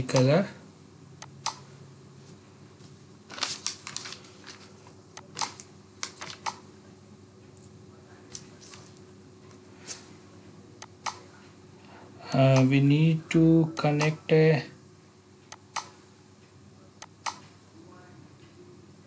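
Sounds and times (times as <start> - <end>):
faint steady hum: 0.0 - 19.0
computer mouse clicks: 15.5 - 16.0.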